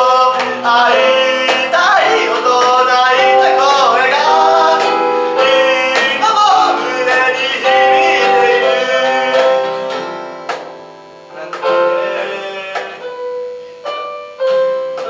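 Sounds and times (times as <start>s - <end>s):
man singing: 0.0s - 10.1s, 11.3s - 13.4s
cajon beat: 0.0s - 15.0s
keyboard chords: 0.0s - 15.0s.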